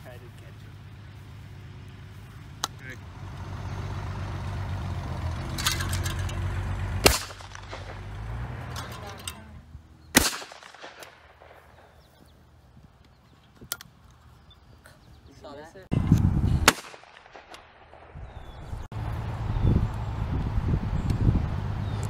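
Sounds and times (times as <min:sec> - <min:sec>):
shotgun shots with echo: 0:07.0 - 0:08.1, 0:10.1 - 0:12.0, 0:16.6 - 0:18.4.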